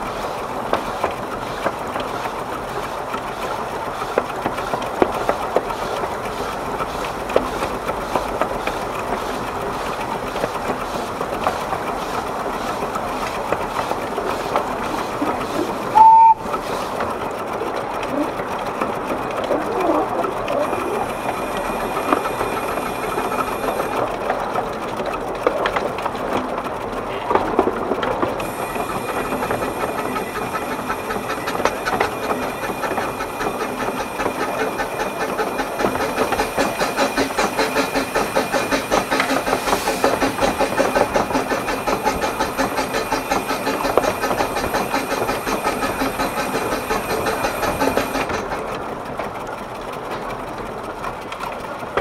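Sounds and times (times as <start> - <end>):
wheels clattering on track: 0.0 - 52.0
steam whistle blast: 16.0 - 16.4.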